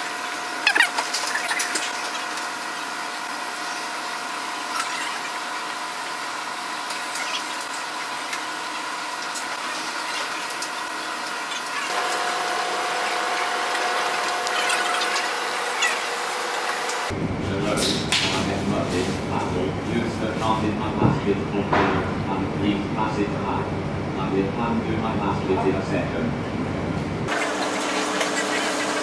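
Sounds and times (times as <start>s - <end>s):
electric motors whining: 0.0s - 17.2s, 27.3s - 29.0s.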